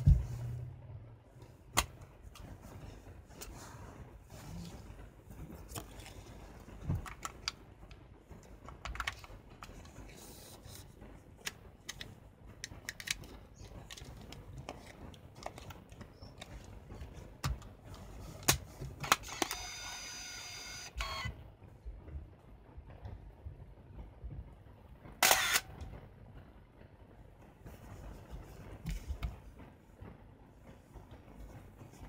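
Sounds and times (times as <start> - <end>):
camera motor whirring: 19.0 - 21.3, 25.2 - 25.6.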